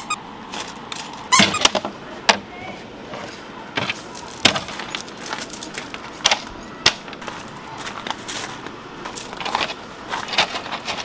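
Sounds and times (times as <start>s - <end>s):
footsteps on gravel: 3.3s - 6.5s, 7.1s - 11.0s.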